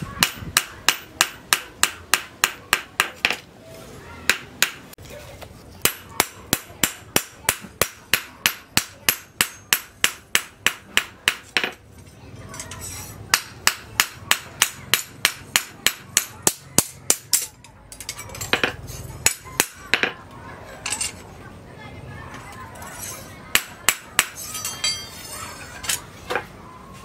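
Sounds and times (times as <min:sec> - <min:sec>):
hammer striking steel on anvil: 0:00.2 - 0:03.4, 0:05.8 - 0:11.8, 0:13.3 - 0:17.6, 0:23.0 - 0:25.3.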